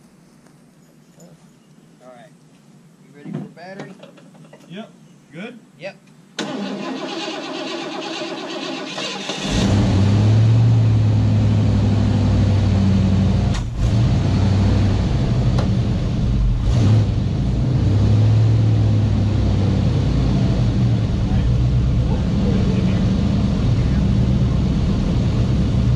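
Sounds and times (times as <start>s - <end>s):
car starter cranking: 6.4s - 10.1s
engine running deep exhaust: 9.4s - 25.9s.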